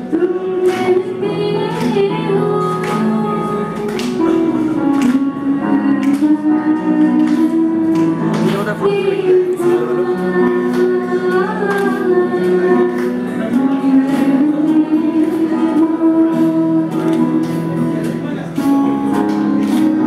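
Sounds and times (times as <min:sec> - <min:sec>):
woman singing: 0:00.0 - 0:17.8
acoustic guitar: 0:00.0 - 0:20.0
keyboard accompaniment: 0:00.0 - 0:20.0.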